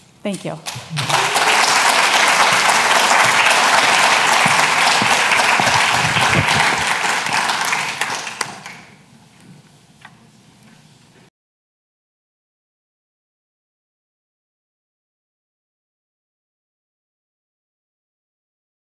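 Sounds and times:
audience applauding: 0:00.7 - 0:08.9.

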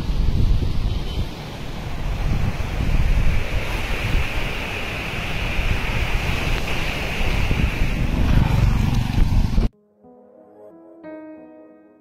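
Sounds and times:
wind buffeting microphone: 0:00.0 - 0:09.7
floodwater rushing: 0:00.9 - 0:09.6.

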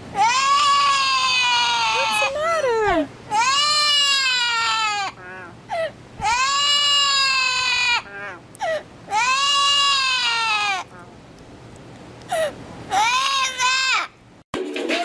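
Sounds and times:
parrot wailing calls: 0:00.2 - 0:02.4, 0:03.3 - 0:05.6, 0:06.2 - 0:08.4, 0:09.1 - 0:10.9.

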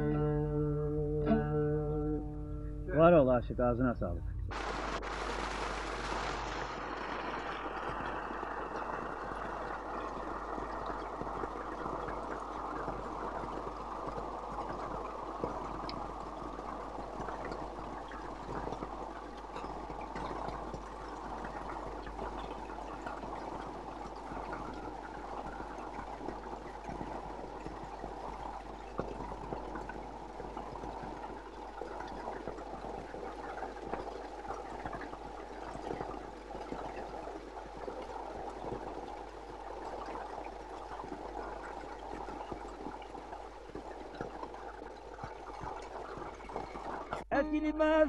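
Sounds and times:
constant low hum: 0:00.0 - 0:47.7
water gushing and splashing: 0:04.5 - 0:47.3.

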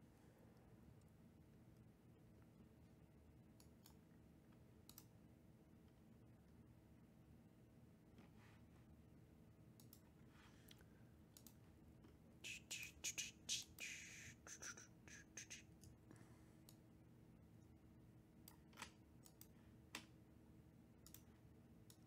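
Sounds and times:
faint clicks: 0:03.6 - 0:05.1, 0:09.8 - 0:10.0, 0:10.7 - 0:11.6, 0:21.0 - 0:21.3.

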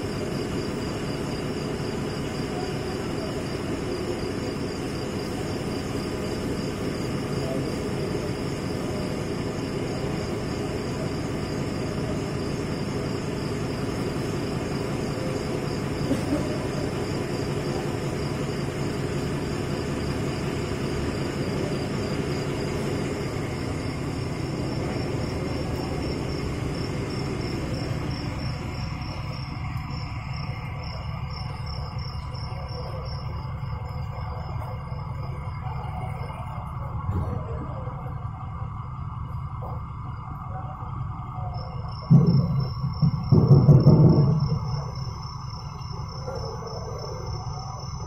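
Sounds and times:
low background rumble: 0:00.0 - 0:48.0.

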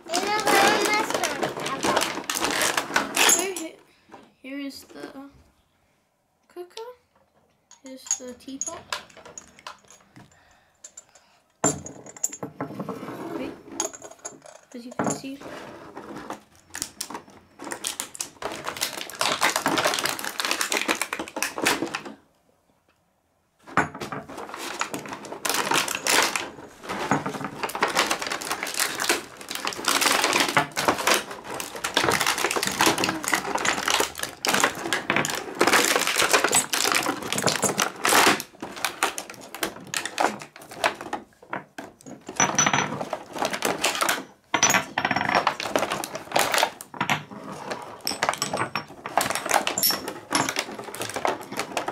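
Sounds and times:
plastic packaging crackling: 0:00.0 - 0:03.6, 0:16.7 - 0:22.0, 0:24.4 - 0:41.0, 0:49.0 - 0:51.9.

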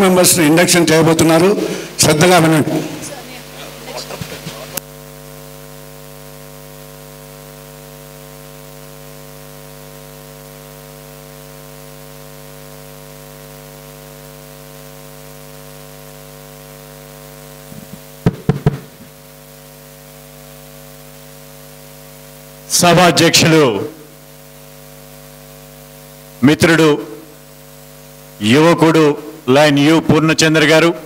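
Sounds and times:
electrical mains hum: 0:00.0 - 0:31.0
microphone handling knocks: 0:17.7 - 0:19.2.

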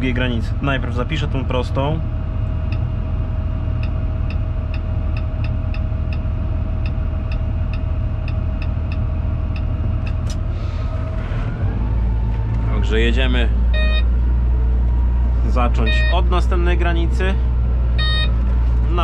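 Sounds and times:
steady whine: 0:00.0 - 0:19.0
tractor diesel engine running: 0:00.0 - 0:19.0
electronic ticking: 0:03.8 - 0:10.2, 0:18.0 - 0:18.3.

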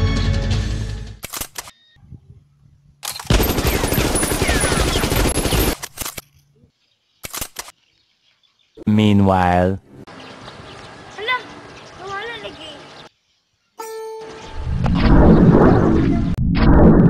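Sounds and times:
background music: 0:00.0 - 0:01.2
machine-gun fire: 0:03.3 - 0:05.9.

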